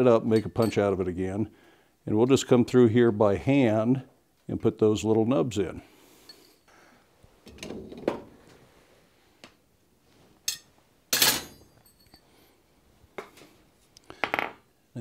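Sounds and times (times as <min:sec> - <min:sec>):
tools knocking and clinking: 0:00.2 - 0:01.0, 0:10.5 - 0:12.2.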